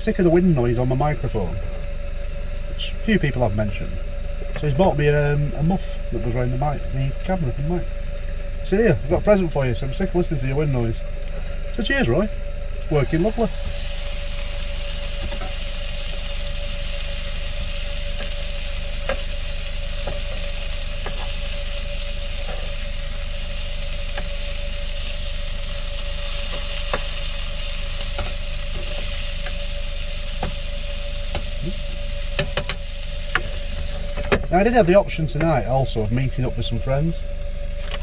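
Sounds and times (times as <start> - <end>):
faint steady hum: 0.0 - 38.0
burgers sizzling in a pan: 12.9 - 34.6.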